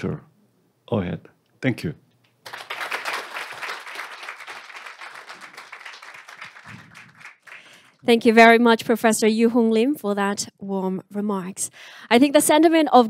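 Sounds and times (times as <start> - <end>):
audience applauding: 2.4 - 8.0.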